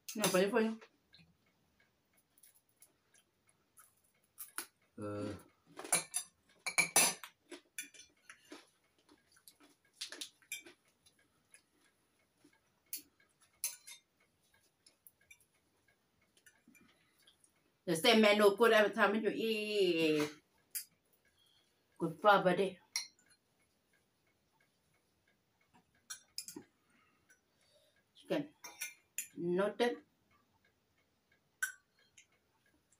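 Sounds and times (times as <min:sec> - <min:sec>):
cutlery clinking on plates: 0:05.8 - 0:08.5, 0:13.0 - 0:14.1, 0:28.6 - 0:29.4.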